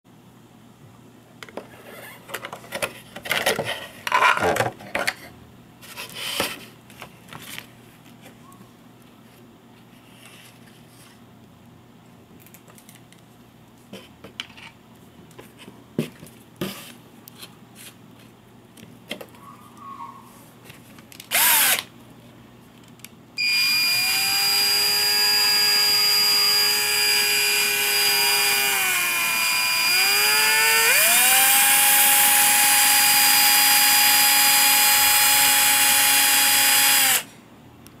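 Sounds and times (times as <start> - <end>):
cordless drill whining: 21.3 - 21.8, 23.4 - 37.3.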